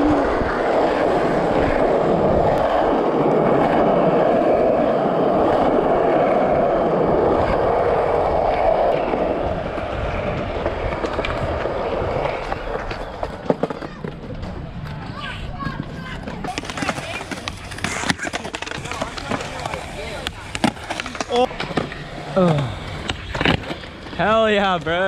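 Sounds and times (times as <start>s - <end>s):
skateboard wheels rolling on asphalt: 0.0s - 25.0s.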